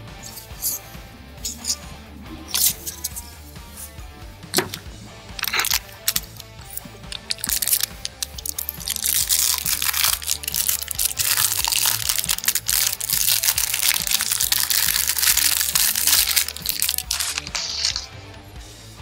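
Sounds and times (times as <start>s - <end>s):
background music: 0.0s - 19.0s
cellophane wrapper crinkling: 5.4s - 6.4s, 7.1s - 18.1s.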